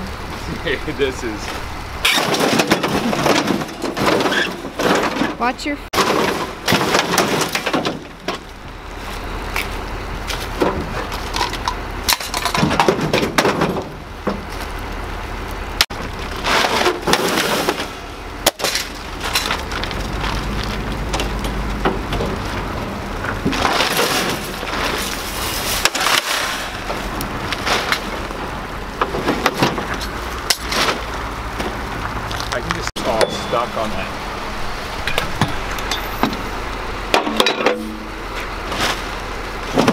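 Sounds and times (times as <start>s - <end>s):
scrap metal clanking and crashing: 1.2s - 9.1s, 10.3s - 14.7s, 15.8s - 39.9s
low rumble: 17.8s - 39.6s.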